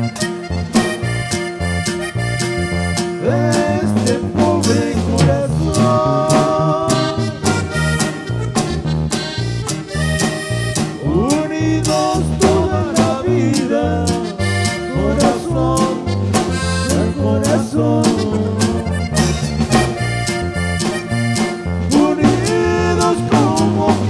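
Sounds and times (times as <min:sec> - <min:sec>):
accordion: 0:00.0 - 0:24.0
bass: 0:00.0 - 0:24.0
steady drum beat: 0:00.1 - 0:24.0.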